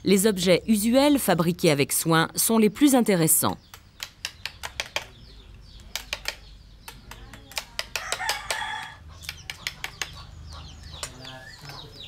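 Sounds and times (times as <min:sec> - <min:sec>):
rooster crowing: 0:08.0 - 0:09.1.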